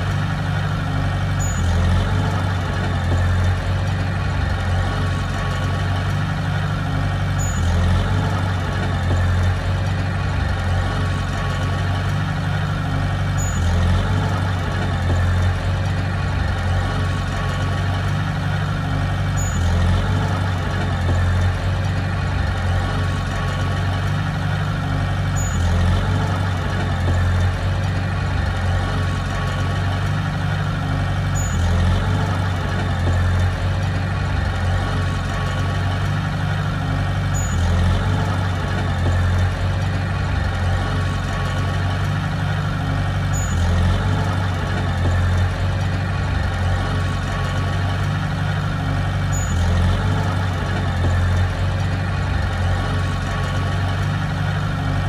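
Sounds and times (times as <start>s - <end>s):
heavy diesel engine running: 0.0s - 55.0s
faint high chirp: 1.4s - 1.6s, 7.4s - 7.6s, 13.4s - 13.6s, 19.4s - 19.6s, 31.4s - 31.6s, 37.3s - 37.6s, 43.3s - 43.6s, 49.3s - 49.6s.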